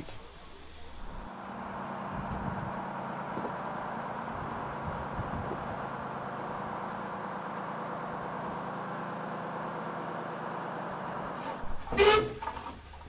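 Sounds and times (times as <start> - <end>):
locomotives humming and hissing: 0.0 - 1.6, 11.4 - 13.0.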